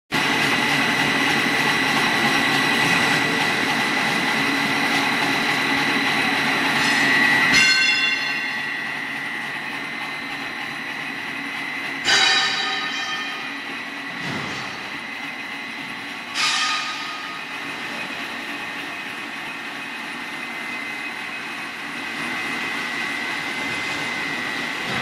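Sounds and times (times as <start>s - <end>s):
machine noise with high whine: 0.1s - 25.0s.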